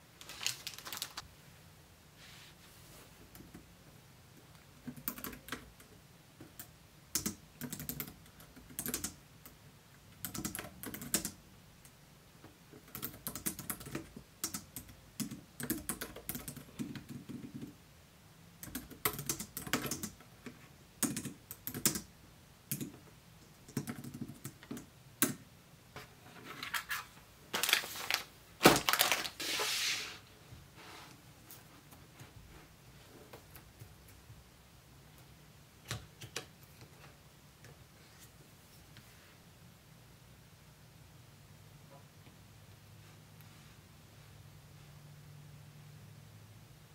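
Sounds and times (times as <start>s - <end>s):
keyboard typing clicks: 18.6s - 20.2s, 21.0s - 22.1s, 22.7s - 23.0s.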